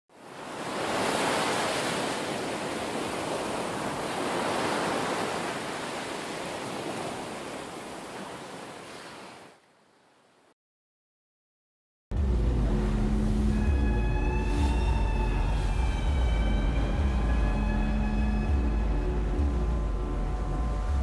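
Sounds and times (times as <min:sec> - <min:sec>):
ocean waves breaking: 0:00.1 - 0:10.5.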